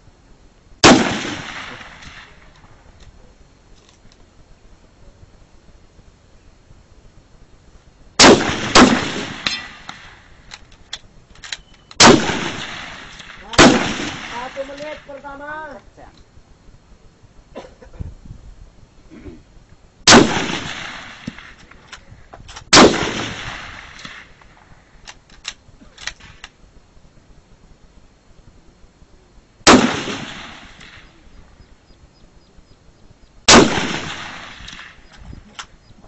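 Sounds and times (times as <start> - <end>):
rifle shots echoing: 0.8 - 2.8, 8.2 - 10.6, 12.0 - 15.4, 20.1 - 21.7, 22.7 - 24.8, 29.6 - 31.4, 33.5 - 35.8.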